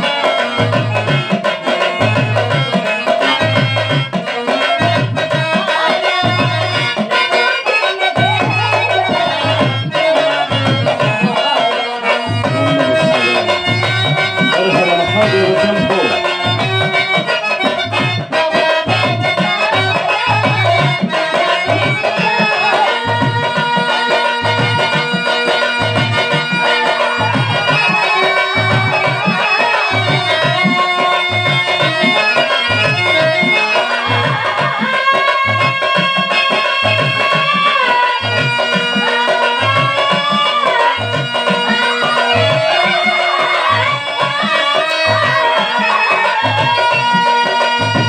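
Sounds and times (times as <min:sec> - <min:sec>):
harmonium notes: 0:00.0 - 0:48.0
tabla strokes: 0:00.0 - 0:48.0
woman singing: 0:04.4 - 0:15.0, 0:32.0 - 0:48.0.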